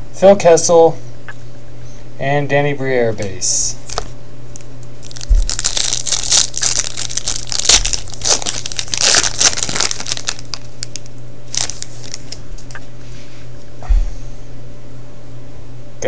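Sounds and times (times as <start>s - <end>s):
low hum: 0.0s - 16.0s
wrapper tearing and crinkling: 3.8s - 12.7s.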